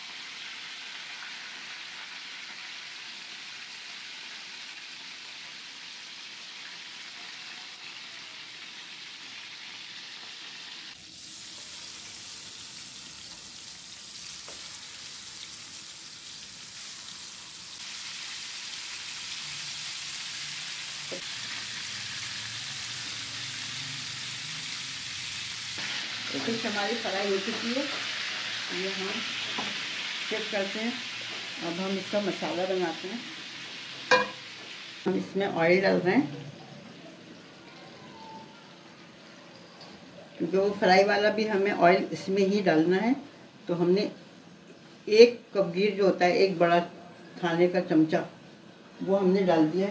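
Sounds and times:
fish sizzling in oil: 0:00.0 - 0:35.4.

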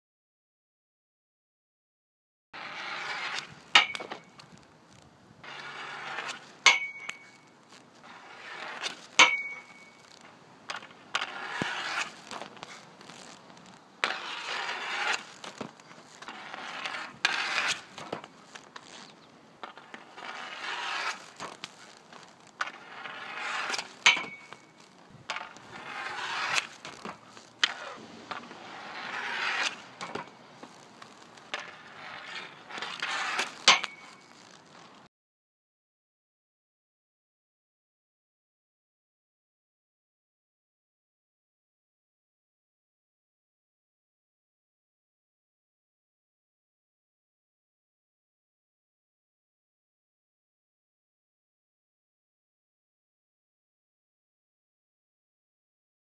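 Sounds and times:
hockey stick hitting puck: 0:02.6 - 0:04.5, 0:05.4 - 0:34.3
puck hitting net and boards: 0:02.6 - 0:04.6, 0:05.4 - 0:35.1
skate wheels rolling: 0:02.6 - 0:35.1
puck pinging off metal frame: 0:03.3 - 0:04.4, 0:06.1 - 0:07.5, 0:08.8 - 0:10.0, 0:23.6 - 0:25.8, 0:26.4 - 0:30.4, 0:32.6 - 0:34.3.

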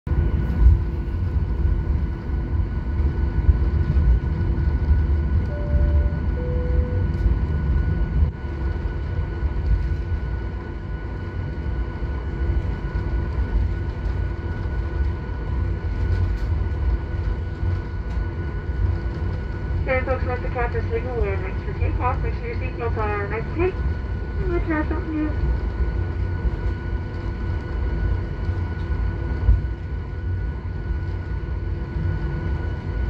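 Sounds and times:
jet engines idling: 0:00.2 - 0:32.8
two-note cabin chime: 0:05.5 - 0:07.2.

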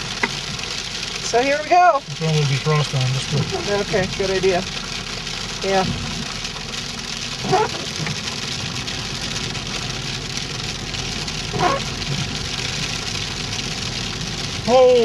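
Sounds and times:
car engine running: 0:00.0 - 0:15.0
hail on car roof: 0:00.0 - 0:15.0.

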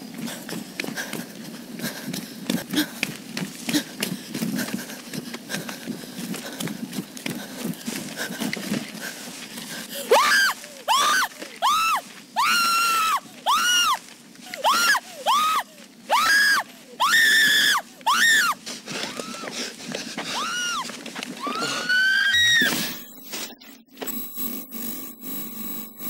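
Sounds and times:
rustling and running footsteps: 0:00.0 - 0:24.2
woman screaming: 0:10.1 - 0:14.0, 0:14.6 - 0:18.6, 0:21.4 - 0:22.7.

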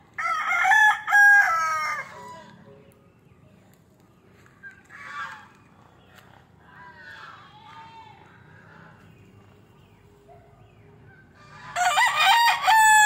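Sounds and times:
rooster crowing: 0:00.2 - 0:02.6, 0:11.5 - 0:13.0.

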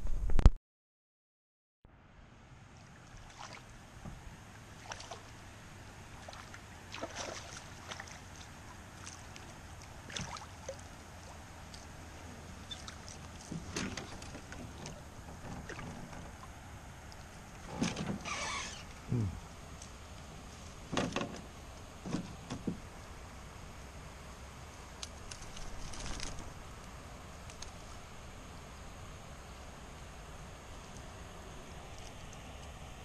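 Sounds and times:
faint low hum: 0:01.9 - 0:33.0
fish splashing at water surface: 0:06.2 - 0:11.9.

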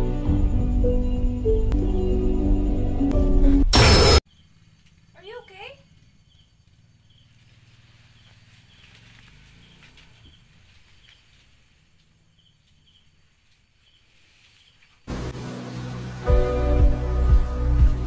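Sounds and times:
music: 0:00.0 - 0:04.2, 0:15.1 - 0:18.0.

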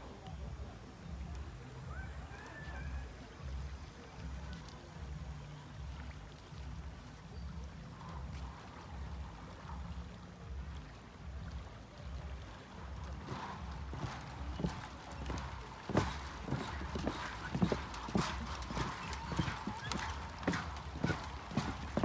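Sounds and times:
footsteps on wooden planks: 0:12.8 - 0:22.0.

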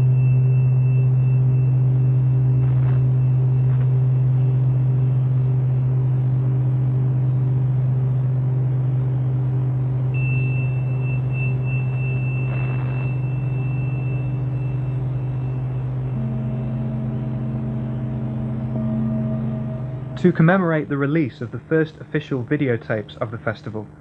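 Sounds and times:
loud low hum: 0:00.0 - 0:22.4
faint high thin tone: 0:12.6 - 0:21.0.

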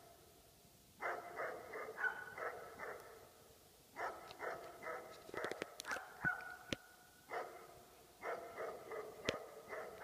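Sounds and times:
dogs barking: 0:01.0 - 0:03.2, 0:04.0 - 0:06.7, 0:07.3 - 0:10.0.

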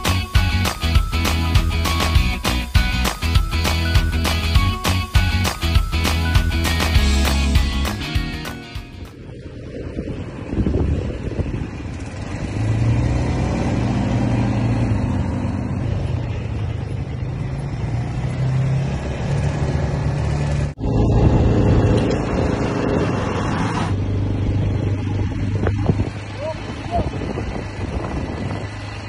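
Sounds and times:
quad bike engine revving: 0:09.9 - 0:29.0.

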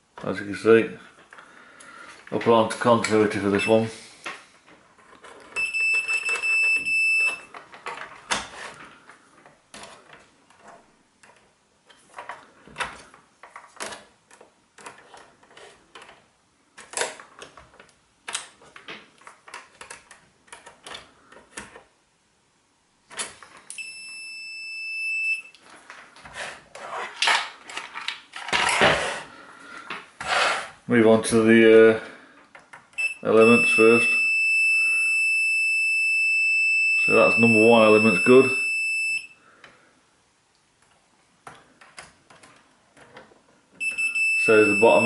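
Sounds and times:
multimeter high beep: 0:03.6 - 0:03.8, 0:05.6 - 0:07.5, 0:23.7 - 0:25.5, 0:33.0 - 0:39.4, 0:43.8 - 0:45.0.

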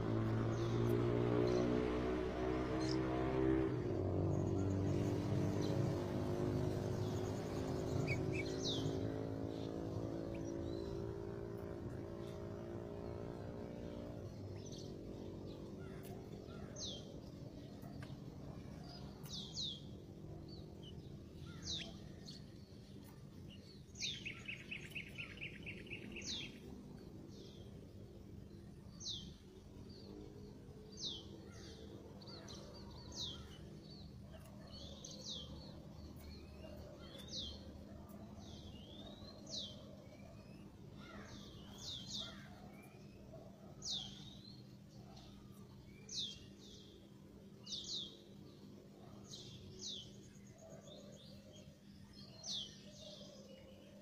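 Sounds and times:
passing vehicle: 0:00.0 - 0:17.7
low engine hum: 0:00.0 - 0:52.8.

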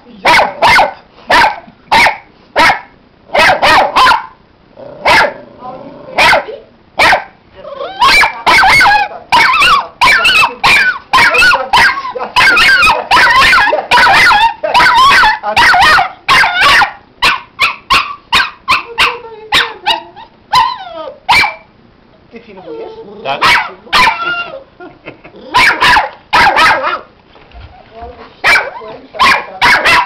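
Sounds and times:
puppy barking and yipping: 0:00.3 - 0:04.4, 0:06.2 - 0:07.3, 0:07.9 - 0:21.7, 0:23.4 - 0:24.6, 0:25.5 - 0:27.1, 0:28.4 - 0:30.0.

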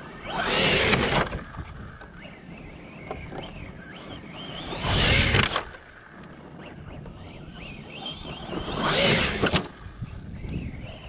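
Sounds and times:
electric motor whining: 0:00.0 - 0:11.0
tires tearing through dry grass: 0:00.0 - 0:11.0.

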